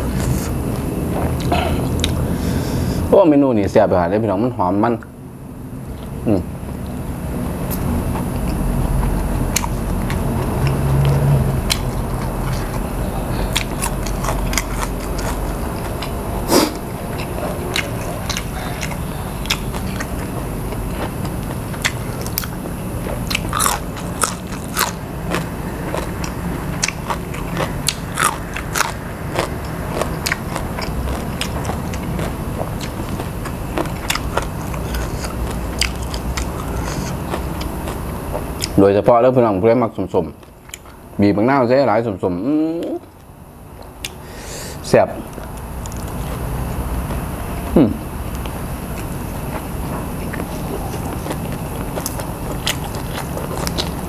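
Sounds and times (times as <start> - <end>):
person chewing crunchy vegetables: 0.0 - 3.0, 5.9 - 38.8, 40.4 - 41.0, 45.2 - 54.0
low hum: 0.0 - 39.6.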